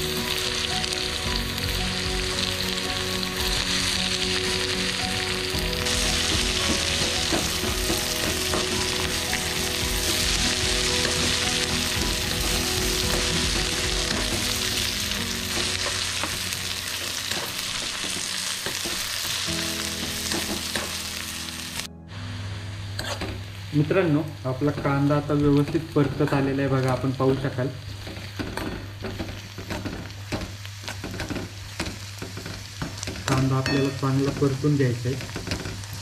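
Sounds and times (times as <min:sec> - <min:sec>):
onions sizzling in hot oil: 0:00.0 - 0:36.0
spoon scraping a pan: 0:23.0 - 0:23.4.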